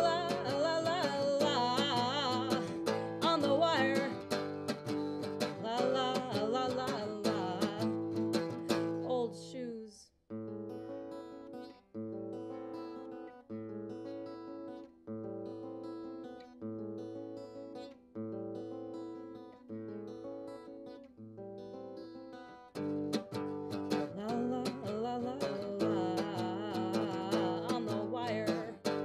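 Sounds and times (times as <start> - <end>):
acoustic guitar strummed chords: 0.0 - 9.5, 10.4 - 29.0.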